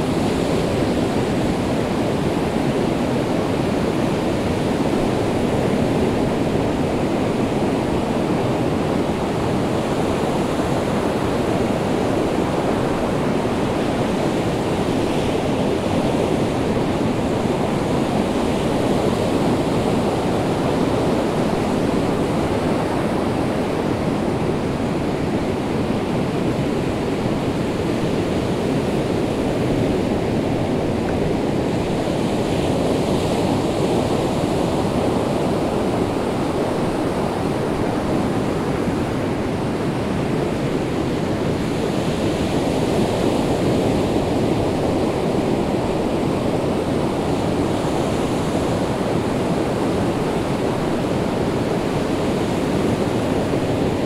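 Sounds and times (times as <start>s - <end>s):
waves breaking on beach: 0.0s - 54.0s.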